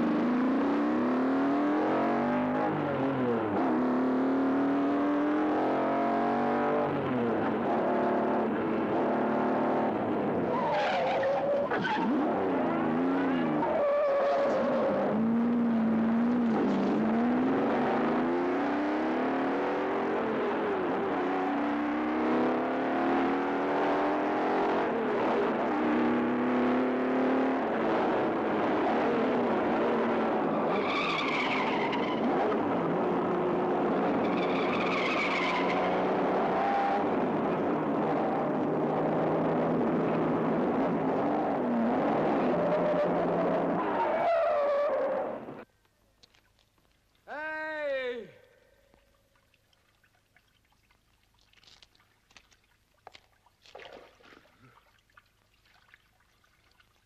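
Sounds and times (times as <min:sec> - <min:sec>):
tire squeals: 0:10.4 - 0:15.3, 0:30.4 - 0:32.7, 0:34.1 - 0:37.1, 0:42.3 - 0:45.6.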